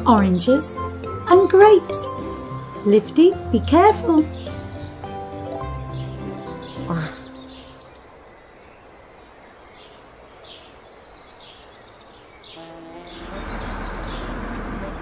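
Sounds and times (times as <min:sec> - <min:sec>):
bird chirps: 0:00.0 - 0:15.0
truck engine rumbling: 0:12.6 - 0:15.0.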